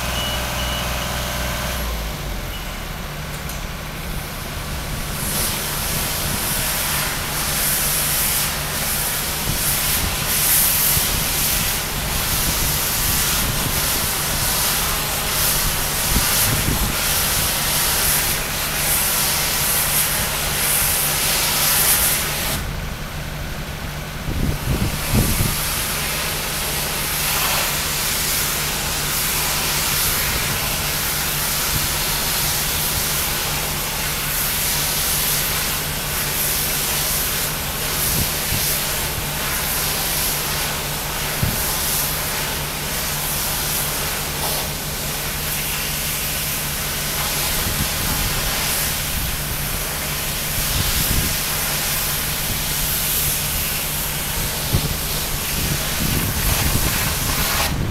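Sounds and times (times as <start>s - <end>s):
engine hum: 0.0s - 21.6s
high-pressure water jet hissing: 3.8s - 57.9s.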